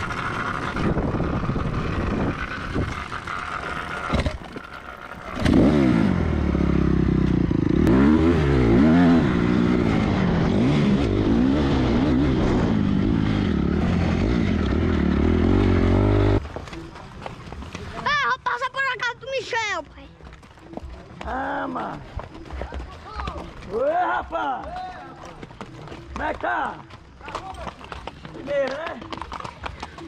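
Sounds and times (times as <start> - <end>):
dirt bike engine revving: 0.0 - 16.4.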